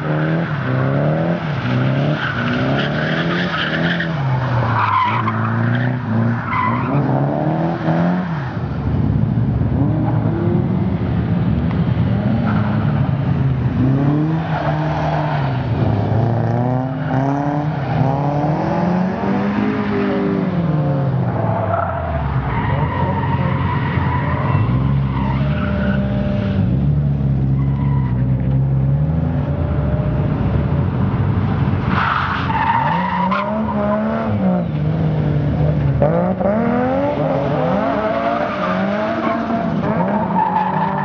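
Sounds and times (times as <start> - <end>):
tyres skidding and squealing: 0.0 - 9.2, 12.1 - 30.4, 31.4 - 41.0
car engine revving: 32.6 - 41.0.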